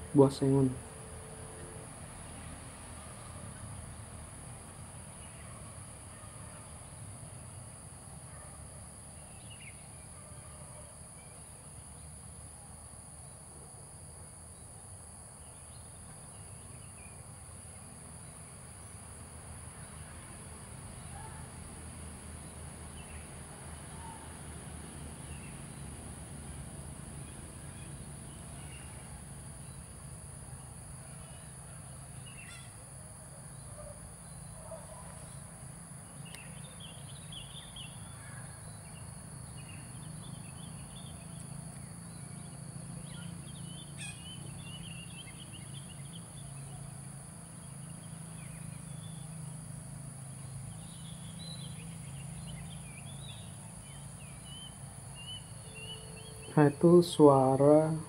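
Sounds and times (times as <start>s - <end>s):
distant birdsong: 8.2s - 12.5s, 14.3s - 58.0s
distant cuckoo calling: 32.3s - 32.8s, 43.1s - 44.9s, 54.6s - 56.6s.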